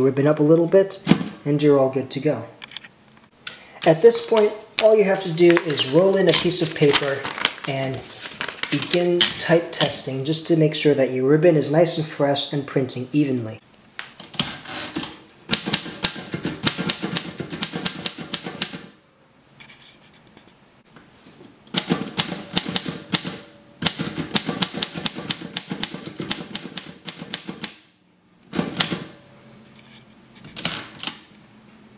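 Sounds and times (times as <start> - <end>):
typewriter key strikes: 21.8 - 27.8, 28.6 - 29.2.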